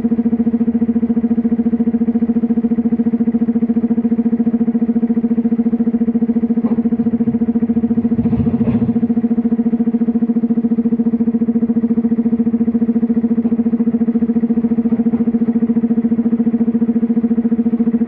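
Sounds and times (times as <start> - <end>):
excavator engine and hydraulics droning: 0.0 - 18.0
stone dropping into truck: 6.6 - 9.1.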